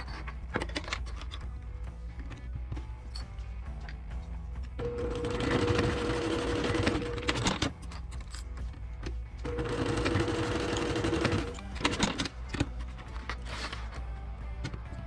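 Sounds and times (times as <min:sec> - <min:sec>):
sewing machine stitching: 0:04.8 - 0:07.7, 0:09.5 - 0:12.3.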